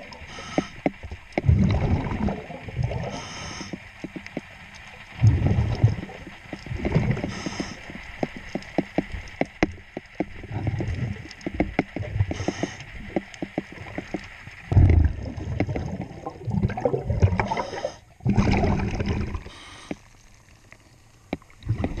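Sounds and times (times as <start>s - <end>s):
regulator breathing hiss: 0.2s - 1.0s, 3.0s - 4.0s, 7.2s - 8.1s, 12.3s - 13.0s, 19.4s - 20.1s
bubble bursts underwater: 1.4s - 3.0s, 14.8s - 17.6s, 18.2s - 19.5s.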